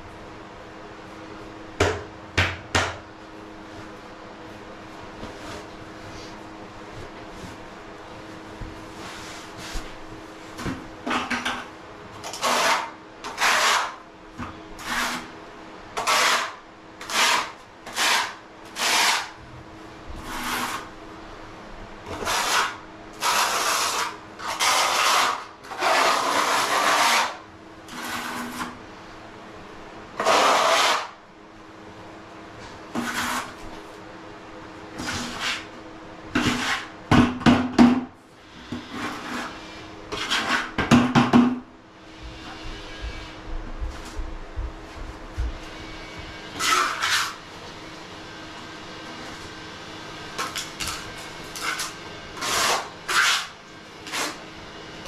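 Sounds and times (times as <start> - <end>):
trowel scraping mortar on floor: 12.2 - 14.0, 14.8 - 15.3, 16.0 - 19.4, 20.2 - 20.9, 22.1 - 28.8, 30.2 - 31.2, 32.9 - 33.7, 35.0 - 35.7, 36.4 - 36.9, 38.6 - 40.8, 46.6 - 47.4, 50.4 - 54.4.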